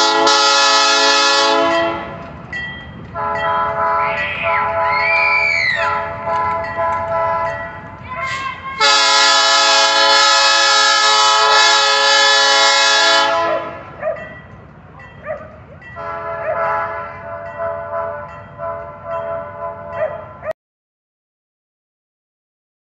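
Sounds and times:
train air horn blast: 0.0 - 2.2, 3.2 - 7.6, 8.2 - 14.0, 16.0 - 19.9
low rumble of passing train: 0.0 - 20.5.

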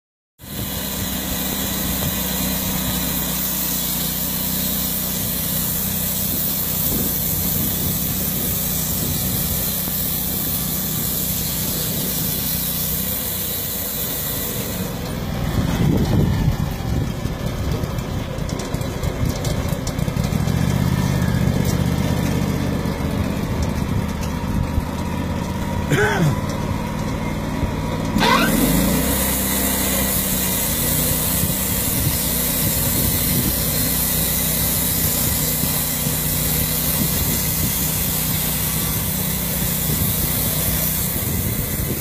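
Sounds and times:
saw cutting hiss: 0.4 - 16.7, 28.2 - 42.0
saw engine running: 0.4 - 42.0.

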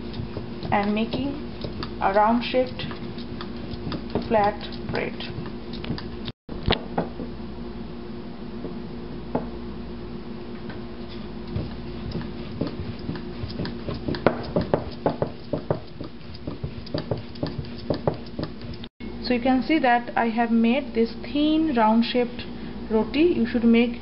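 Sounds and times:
rolling pin knocking on wooden board: 11.5 - 18.8.

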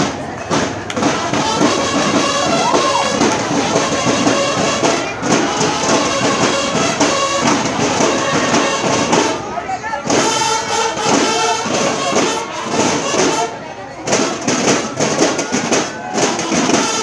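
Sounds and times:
brass horns: 0.0 - 17.0
steady drumming: 0.0 - 17.0.

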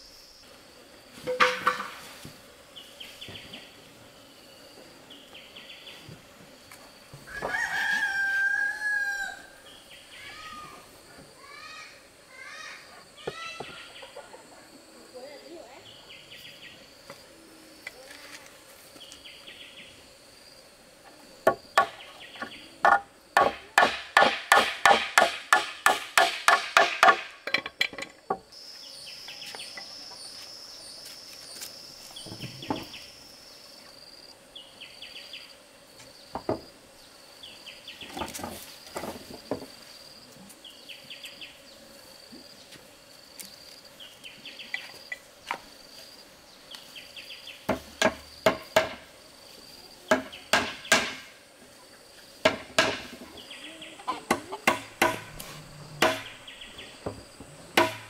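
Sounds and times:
insects droning and chirping: 0.0 - 58.0
hand tool striking wood: 1.2 - 2.1, 21.4 - 28.4, 47.7 - 49.1, 50.1 - 51.4, 52.4 - 53.3, 54.3 - 56.4, 57.0 - 58.0.

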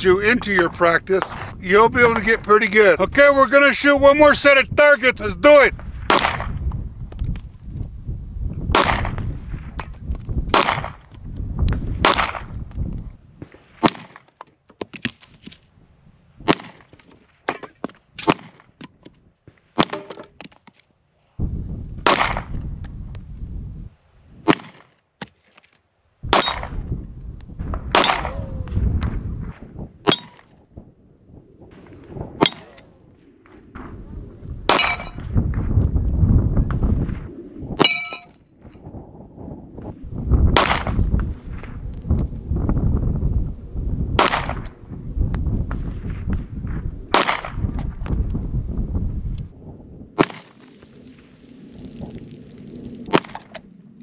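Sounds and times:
pistol shots: 6.1 - 6.6, 8.7 - 9.2, 10.5 - 11.0, 12.0 - 12.5, 22.0 - 22.5, 26.3 - 26.8, 27.9 - 28.5, 34.7 - 35.2, 40.6 - 41.0, 44.2 - 44.7, 47.1 - 47.6
bullets striking steel targets: 26.3 - 26.8, 27.9 - 28.4, 30.1 - 30.6, 32.4 - 32.8, 34.7 - 35.2, 37.8 - 38.3.

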